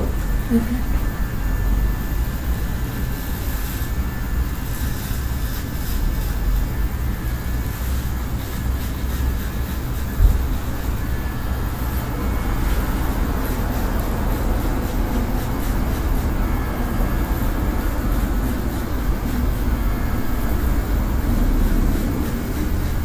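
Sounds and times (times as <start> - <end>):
electric hair clippers buzzing: 0.0 - 23.0.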